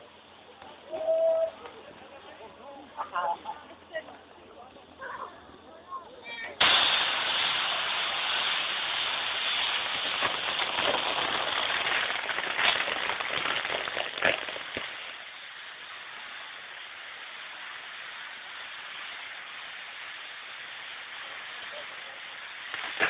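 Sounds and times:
fireworks crackling and hissing: 0.0 - 23.0
spinning fireworks wheels hissing: 6.5 - 23.0
fireworks sharp pops: 6.6 - 23.0.

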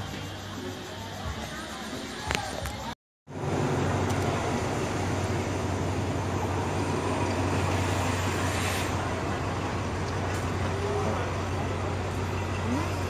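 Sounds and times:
low engine hum: 3.3 - 13.0
passenger train on tracks: 3.3 - 13.0.

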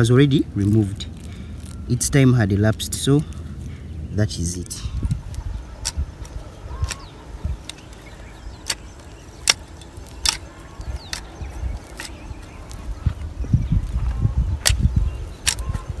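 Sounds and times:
hoe chopping into dry soil: 8.6 - 12.6.

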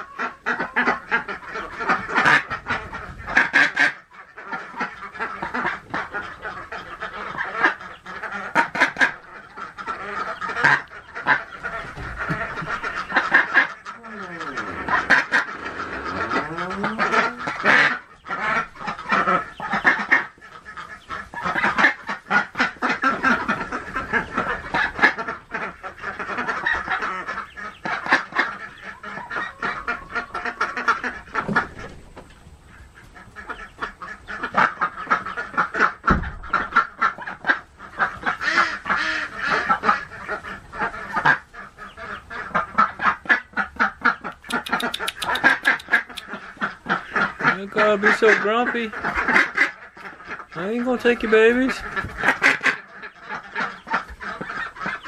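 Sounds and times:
duck quacking harshly: 0.2 - 31.6, 33.4 - 55.0.

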